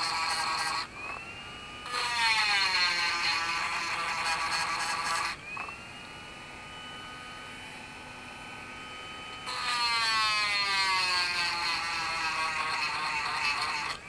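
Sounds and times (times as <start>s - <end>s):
rotary tool grinding metal: 0.0s - 0.9s, 1.8s - 5.7s, 9.4s - 14.0s
rotary tool whining freely: 0.0s - 14.0s.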